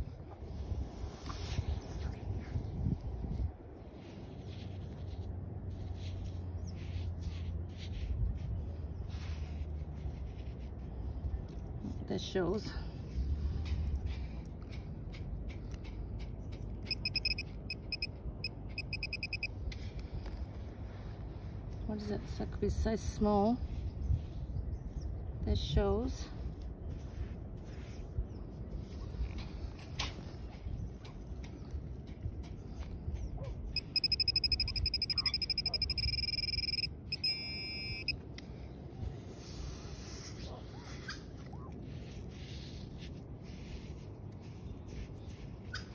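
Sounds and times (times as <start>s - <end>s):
hand scratching through wet sand: 0.5s - 11.6s, 26.5s - 30.5s, 39.0s - 45.9s
rapid short high beeps: 16.8s - 19.6s, 33.8s - 38.2s
metal detector steady tone: 16.8s - 19.8s, 33.7s - 38.2s.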